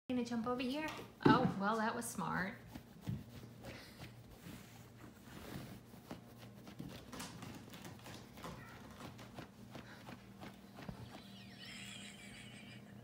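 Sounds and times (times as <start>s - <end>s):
kittens thumping and scratching: 2.6s - 11.4s.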